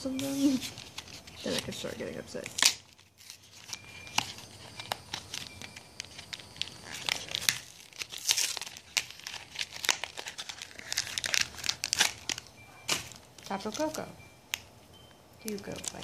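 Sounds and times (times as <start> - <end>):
foil wrapper crinkling and tearing: 0.2 - 14.7, 15.4 - 16.0.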